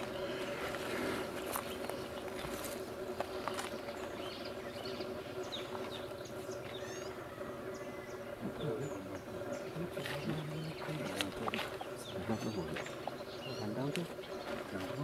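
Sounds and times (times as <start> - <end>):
small birds chirping: 0.0 - 15.0
steady low hum: 0.0 - 15.0.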